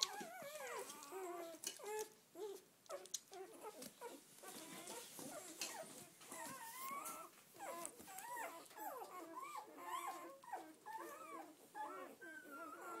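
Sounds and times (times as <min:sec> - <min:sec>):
puppies squeaking and whimpering: 0:00.0 - 0:13.0.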